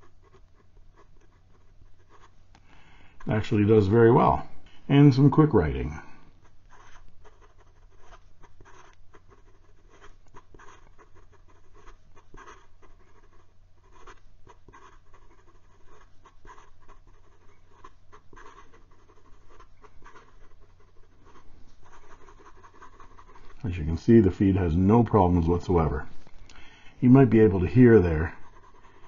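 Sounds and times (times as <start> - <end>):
fountain pen writing on paper: 0.0 - 2.3, 6.7 - 23.6, 28.4 - 29.0.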